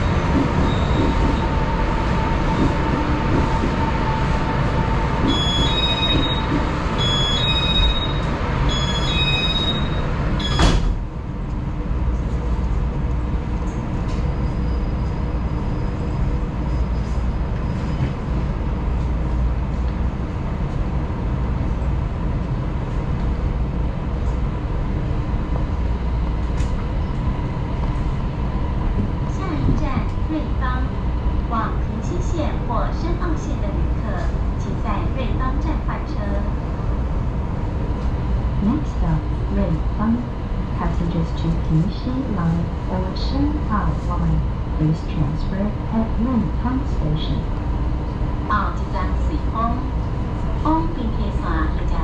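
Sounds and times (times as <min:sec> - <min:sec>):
train carriage rumbling: 0:00.0 - 0:52.0
train doors banging shut: 0:10.4 - 0:11.0.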